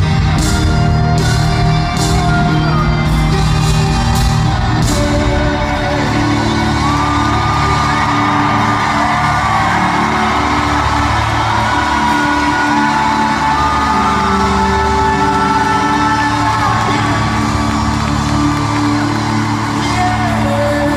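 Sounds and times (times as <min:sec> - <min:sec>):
live pop-rock band: 0:00.0 - 0:20.9.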